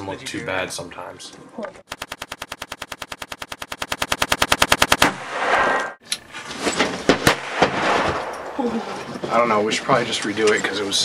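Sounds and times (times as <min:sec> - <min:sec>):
automatic gunfire: 0:01.9 - 0:05.3
sharp cracks: 0:01.9 - 0:06.2, 0:07.0 - 0:09.3.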